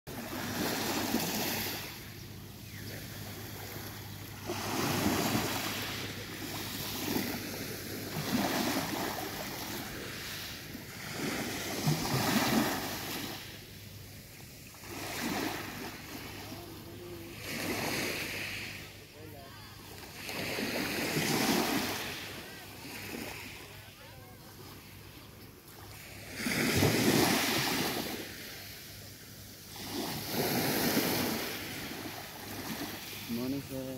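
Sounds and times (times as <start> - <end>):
gentle waves washing onto beach: 0.1 - 33.9.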